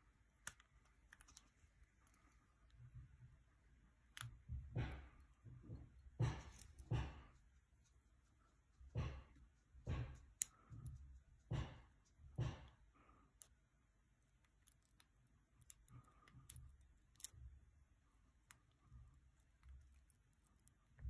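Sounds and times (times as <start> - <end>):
lock pick clicking in padlock: 14.4 - 17.4.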